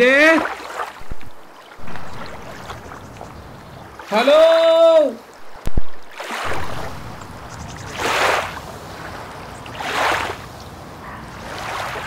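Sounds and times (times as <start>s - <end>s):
water washing against shore: 0.0s - 12.0s.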